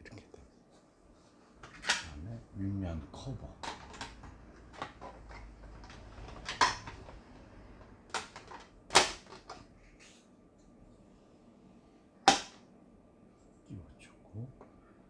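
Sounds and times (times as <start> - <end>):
plastic covers clicking and knocking: 3.6 - 9.7.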